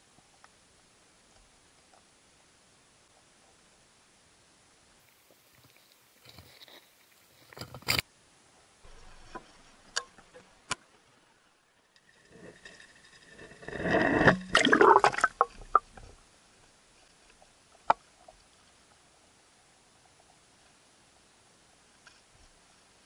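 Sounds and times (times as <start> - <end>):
water splashing and gurgling: 13.3 - 16.0.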